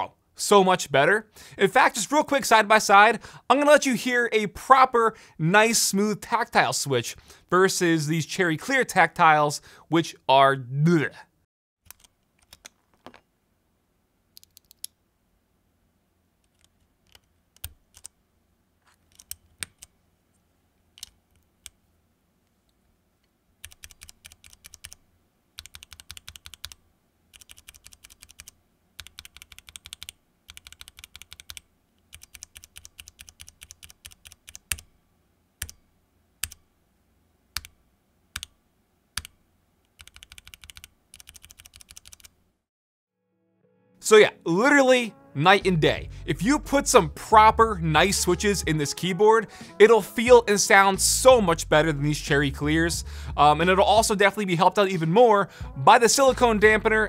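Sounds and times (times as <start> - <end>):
mechanical keyboard keystrokes: 23.6 - 25.0, 25.6 - 34.9, 39.9 - 42.3.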